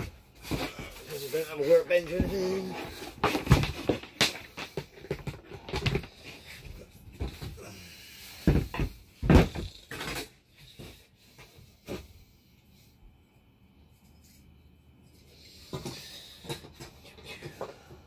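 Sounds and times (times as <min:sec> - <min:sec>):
objects knocking on a wooden floor: 0:03.2 - 0:06.1, 0:08.4 - 0:10.2
heavy thuds: 0:08.4 - 0:09.8.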